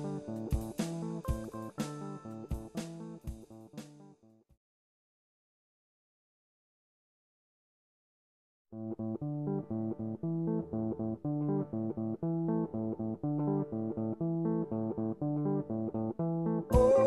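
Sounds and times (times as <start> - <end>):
plucked guitar notes: 0.0 - 2.7, 8.8 - 17.0
bass guitar line: 0.0 - 3.5, 8.8 - 17.0.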